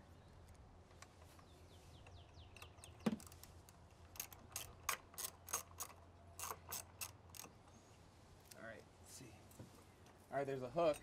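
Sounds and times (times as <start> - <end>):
socket ratchet clicking: 4.1 - 7.6.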